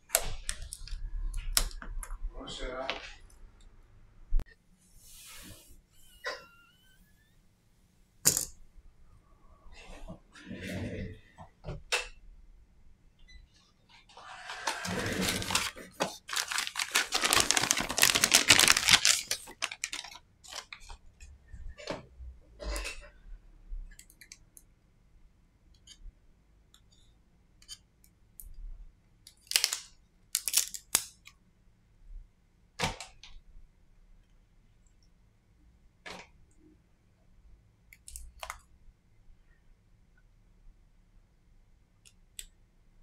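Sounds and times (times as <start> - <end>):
loud rustling and crackling: 14.8 - 20.6.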